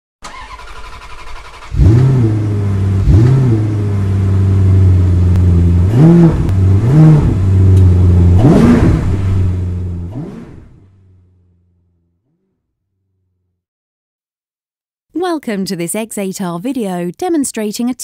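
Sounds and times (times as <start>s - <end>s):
car engine idling: 0.2s - 13.5s
engine throttle blips: 0.2s - 13.5s.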